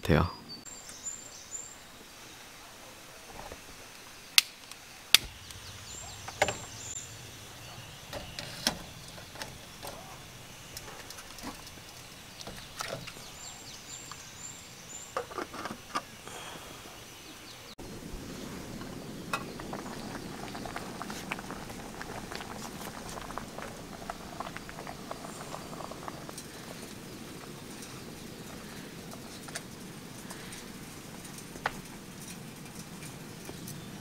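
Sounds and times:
bird chirping: 0:00.0 - 0:02.7, 0:04.8 - 0:21.2
camping gear clicking and knocking: 0:10.7 - 0:13.3.

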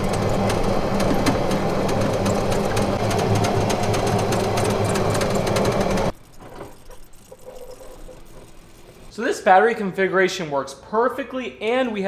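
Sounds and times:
cart clicks and rattles: 0:00.0 - 0:08.1
electric motor hum: 0:00.0 - 0:09.2.

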